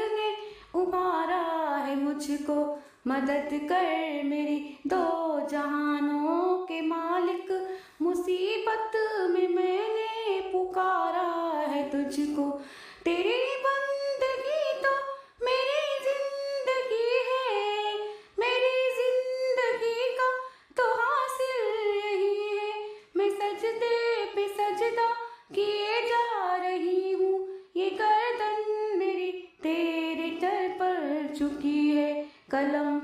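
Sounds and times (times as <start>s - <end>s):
woman singing without accompaniment: 0.0s - 33.0s
breaths between phrases: 12.6s - 13.0s.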